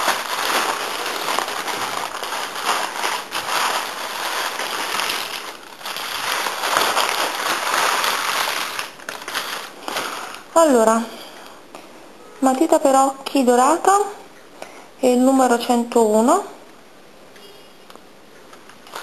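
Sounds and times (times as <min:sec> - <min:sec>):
tissue paper crinkling: 0:00.0 - 0:11.0.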